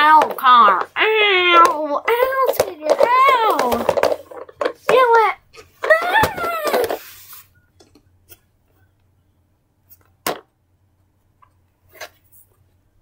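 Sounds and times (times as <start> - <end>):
child crying: 5.8 - 7.0.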